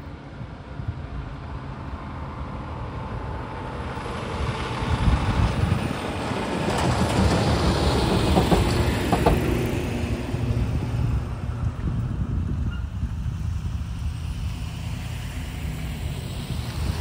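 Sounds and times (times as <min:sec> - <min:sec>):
truck engine rumble: 0:00.0 - 0:17.0.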